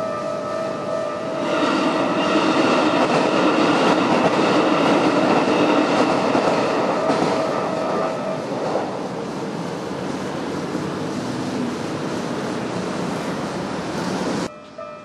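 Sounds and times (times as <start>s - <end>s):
train wheels clattering on rails: 1.4s - 13.1s.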